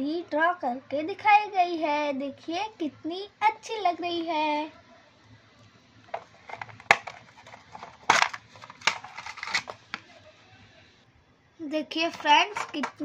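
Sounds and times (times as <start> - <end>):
metal tin clacking and rattling: 6.1 - 9.9, 12.1 - 13.0
rustling: 6.1 - 10.1.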